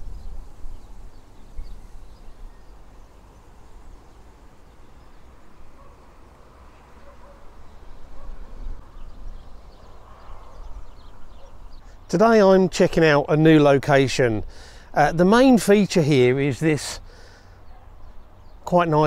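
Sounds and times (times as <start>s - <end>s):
wind rumble on microphone: 0.0s - 3.2s, 7.8s - 11.9s
faint bird chirps: 6.6s - 12.1s.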